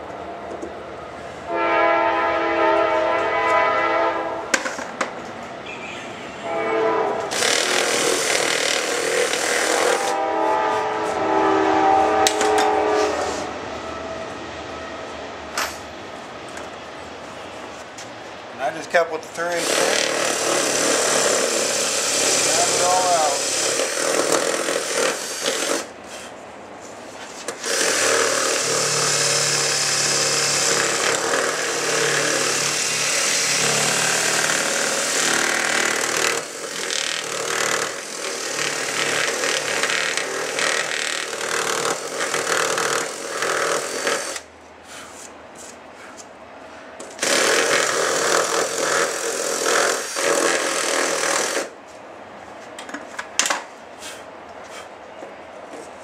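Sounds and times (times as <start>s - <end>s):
cordless drill boring: 7.3s - 10.1s, 19.5s - 25.9s, 27.6s - 44.4s, 47.1s - 51.7s.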